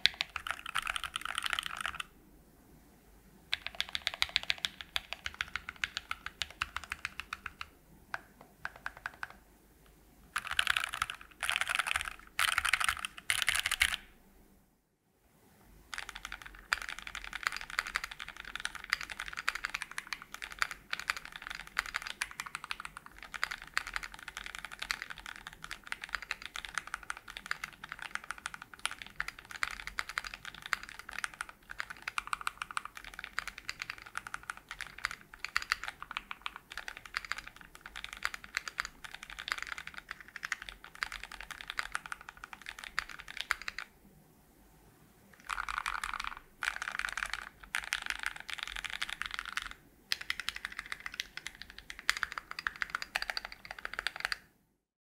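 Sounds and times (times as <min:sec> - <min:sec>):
keyboard keystroke clicks: 0:03.6 - 0:09.4, 0:45.4 - 0:54.4.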